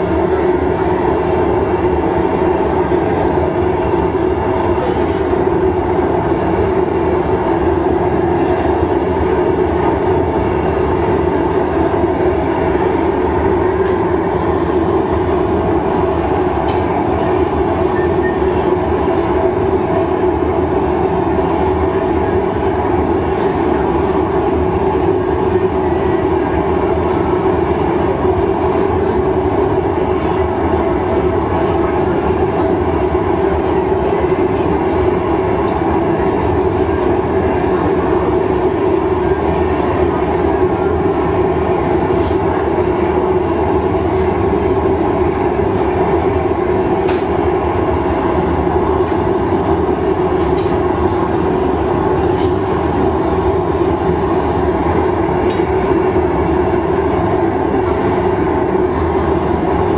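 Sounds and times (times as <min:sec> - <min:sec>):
gas furnace burners droning: 0:00.0 - 0:59.9.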